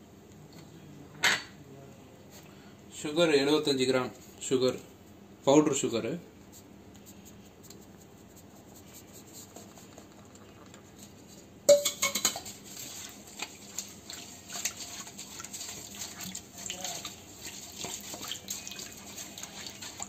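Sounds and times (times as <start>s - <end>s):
spatula clattering against metal bowl: 11.7s - 20.0s
liquid sloshing: 11.8s - 20.0s
spatula scraping bowl: 12.2s - 20.0s.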